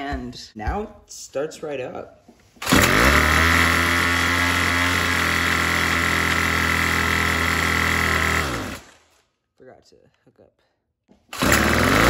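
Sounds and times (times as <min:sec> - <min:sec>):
string trimmer engine running: 0:02.6 - 0:09.0, 0:11.3 - 0:12.0.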